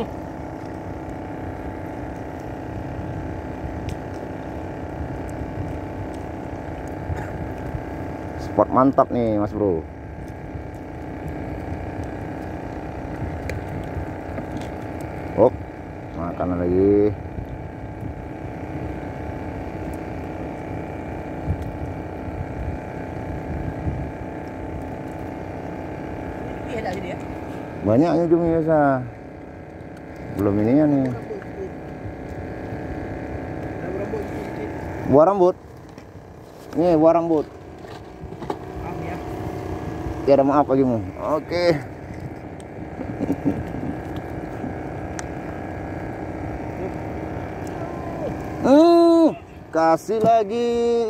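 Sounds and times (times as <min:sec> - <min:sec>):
boat engine humming: 0:00.0 - 0:51.0
wind rumble on microphone: 0:21.0 - 0:24.4.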